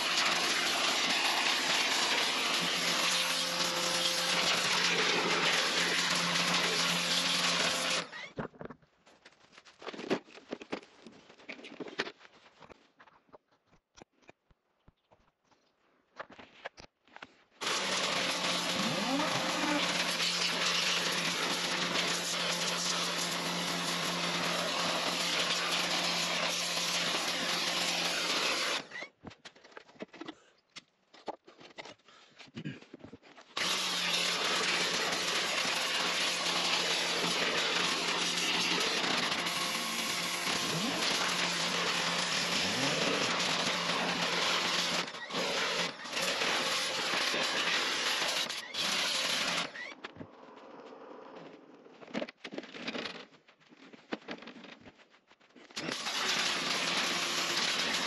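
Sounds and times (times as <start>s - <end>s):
pressure washer spraying: 0.0s - 8.0s, 17.6s - 28.8s.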